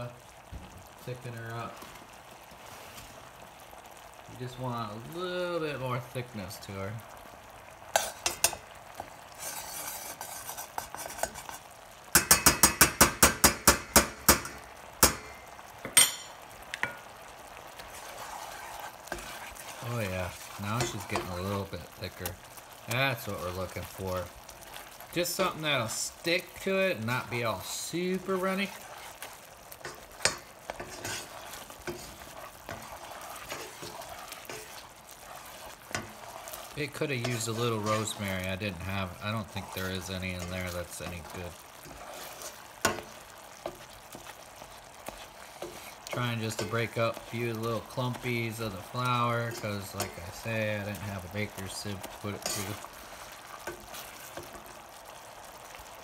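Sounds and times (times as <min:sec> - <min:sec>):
faint sauce sizzle: 0:00.0 - 0:56.0
metal utensil clinking on skillet: 0:07.9 - 0:08.7, 0:09.5 - 0:17.1, 0:20.6 - 0:21.6, 0:29.8 - 0:34.9, 0:35.9 - 0:38.4, 0:42.8 - 0:43.8, 0:45.6 - 0:52.9
spoon scraping a pan: 0:07.9 - 0:24.0, 0:24.6 - 0:55.8.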